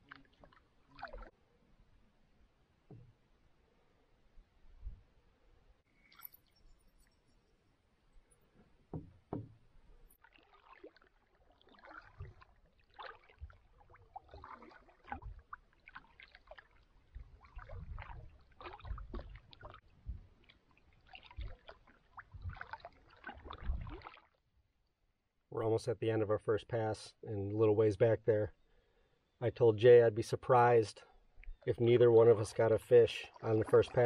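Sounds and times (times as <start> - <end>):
water dripping off paddle: 0.0 - 1.3, 10.2 - 19.8, 20.4 - 24.3
paddle splashing water: 0.0 - 1.4, 10.2 - 24.4, 31.4 - 34.0
paddle knocking against hull: 8.9 - 9.7.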